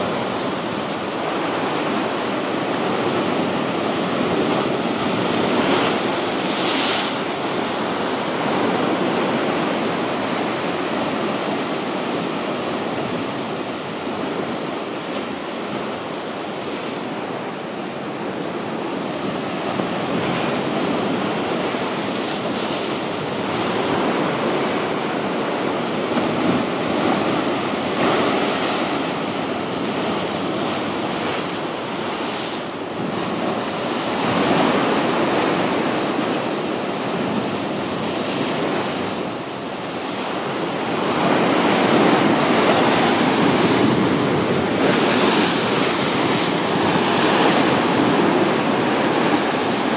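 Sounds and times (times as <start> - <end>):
sea waves breaking on rocks: 40.0 - 49.9.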